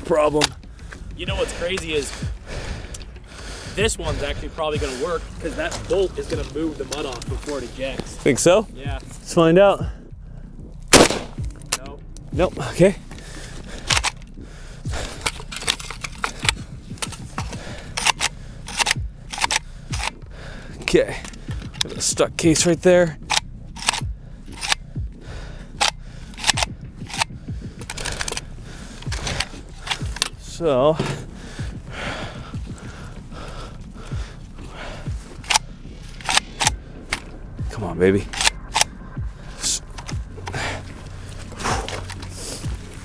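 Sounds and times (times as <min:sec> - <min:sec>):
rifle bolt clacking and rattling: 0:00.2 - 0:03.4, 0:05.6 - 0:08.1, 0:10.8 - 0:12.3, 0:13.1 - 0:14.4, 0:15.0 - 0:25.0, 0:25.7 - 0:31.3, 0:34.0 - 0:37.4, 0:38.2 - 0:39.0, 0:39.9 - 0:40.9, 0:41.6 - 0:43.0
rifle action being worked: 0:13.8 - 0:14.3, 0:15.0 - 0:20.2, 0:23.2 - 0:24.9, 0:25.8 - 0:30.4, 0:35.3 - 0:37.4, 0:38.3 - 0:38.9.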